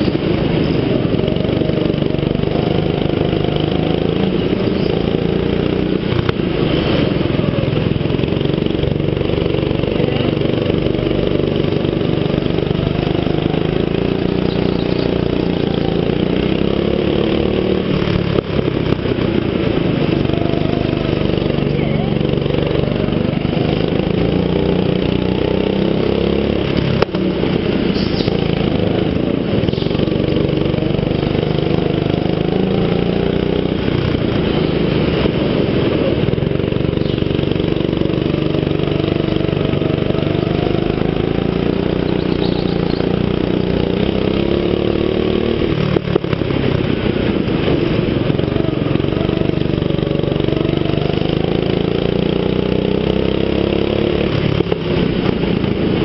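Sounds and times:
go-kart engine revving: 0.0s - 56.0s.

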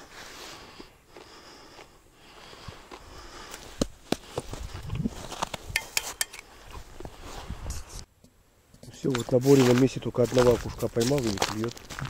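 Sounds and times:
sharp clicks and knocks: 5.7s - 6.5s.

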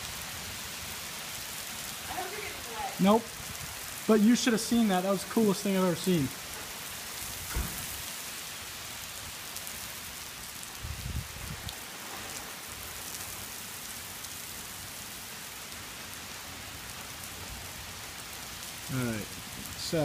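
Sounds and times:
steady rain falling: 0.0s - 20.0s.

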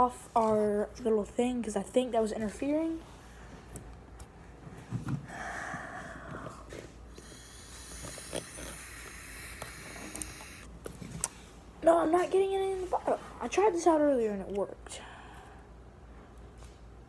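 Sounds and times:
air sucked through a straw: 7.2s - 10.7s.

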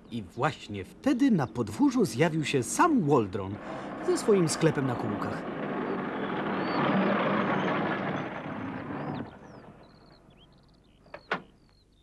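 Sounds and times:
birds chirping: 0.0s - 12.0s
van engine running: 3.4s - 10.7s.

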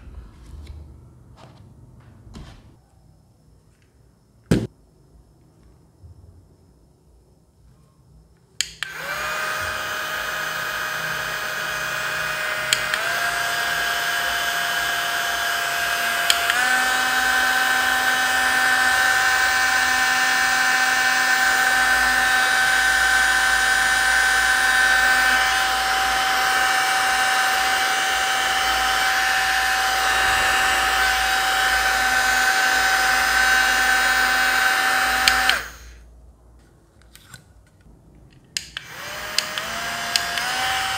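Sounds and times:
mini fan whining: 8.7s - 36.1s, 38.6s - 40.9s.

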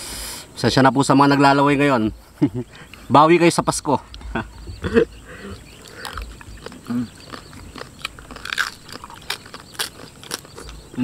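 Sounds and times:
crunching and chewing crispy skin: 5.7s - 11.0s.

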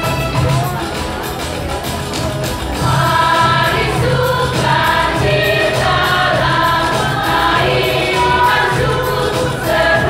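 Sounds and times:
choir singing sustained notes: 2.8s - 10.0s.

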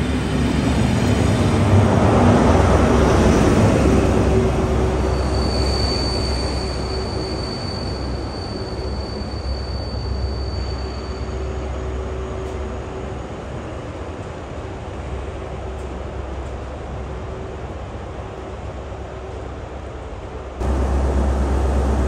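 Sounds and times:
diesel train passing: 0.0s - 22.0s
high-pitched squeal: 4.2s - 11.8s.

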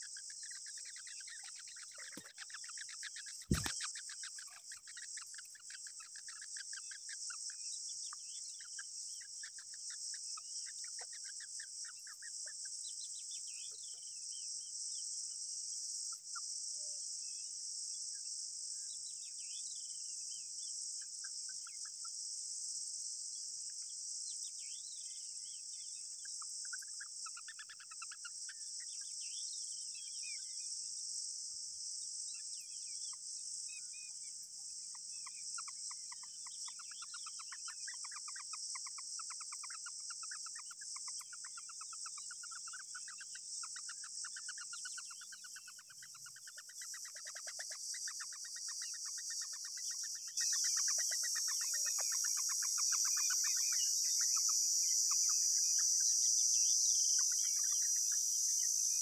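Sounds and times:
nestlings begging calls: 0.0s - 7.4s, 35.6s - 59.0s
high-pitched insect drone: 42.4s - 59.0s.

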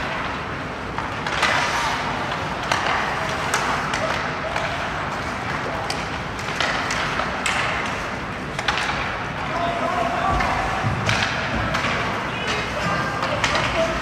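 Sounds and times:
hockey sticks clacking on puck: 0.0s - 14.0s
rink background noise: 0.0s - 14.0s
skate blades scraping ice: 1.2s - 8.2s.

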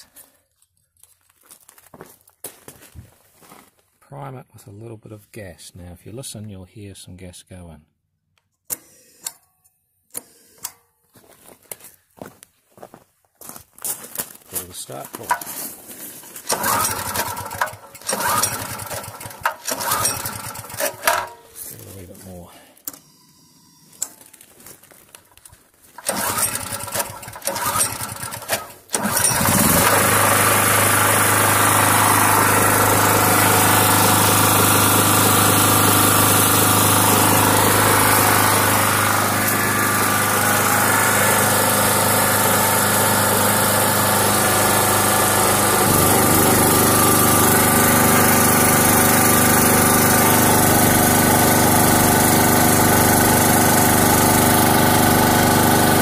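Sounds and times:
generator engine running: 14.9s - 15.6s, 16.4s - 23.0s, 26.0s - 56.0s
recoil starter cranking: 15.2s - 15.6s, 16.4s - 21.4s, 26.0s - 56.0s.

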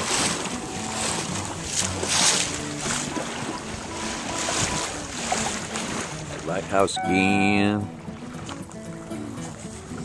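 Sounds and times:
wind buffeting microphone: 0.0s - 6.5s
water washing against hull: 0.0s - 10.0s.

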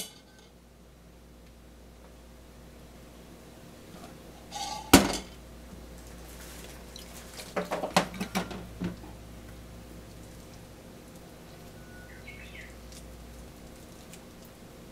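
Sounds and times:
metal pot clanking: 4.5s - 5.3s.

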